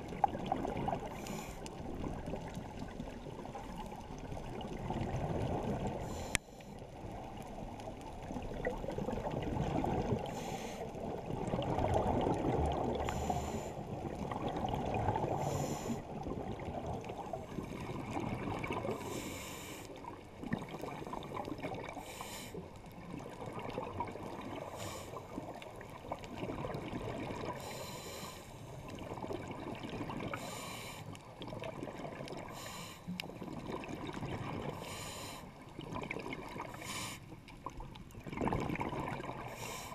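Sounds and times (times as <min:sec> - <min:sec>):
muffled underwater bubbling rumble: 0:00.0 - 0:39.9
scuba breathing hiss: 0:01.2 - 0:01.7, 0:06.0 - 0:06.8, 0:10.2 - 0:11.0, 0:13.0 - 0:13.8, 0:15.3 - 0:16.1, 0:18.9 - 0:20.0, 0:22.0 - 0:22.6, 0:24.6 - 0:25.4, 0:27.6 - 0:28.6, 0:30.3 - 0:31.2, 0:32.5 - 0:33.2, 0:34.7 - 0:35.6, 0:36.7 - 0:37.4, 0:39.4 - 0:39.9.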